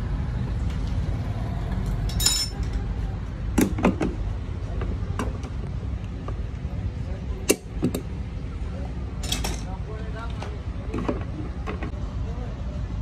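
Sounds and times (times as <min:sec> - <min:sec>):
metal clinks and knocks: 0:02.1 - 0:02.8.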